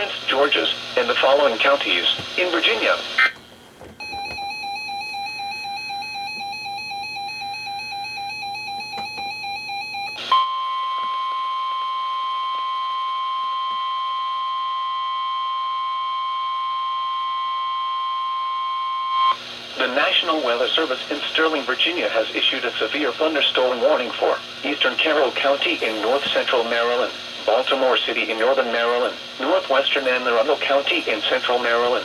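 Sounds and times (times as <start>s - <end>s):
steady warning alarm tone: 4.0s - 19.4s
warbling alarm beeps: 4.0s - 19.4s.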